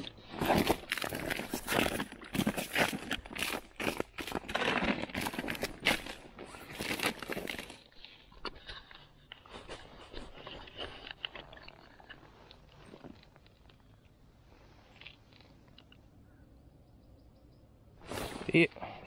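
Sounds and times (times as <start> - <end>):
faint clicks and handling: 4.2 - 14.2, 14.8 - 16.2.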